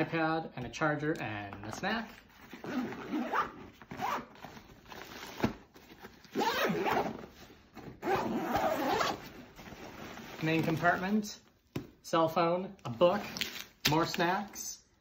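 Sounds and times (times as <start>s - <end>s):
backpack zipper pulled shut: 2.6s - 4.3s, 6.4s - 7.2s, 8.0s - 9.2s.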